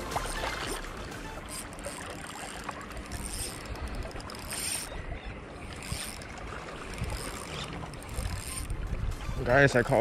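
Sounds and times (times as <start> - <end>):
water lapping: 0.0 - 10.0
fishing reel winding: 1.4 - 4.9, 5.6 - 8.8
wind buffeting microphone: 2.8 - 10.0.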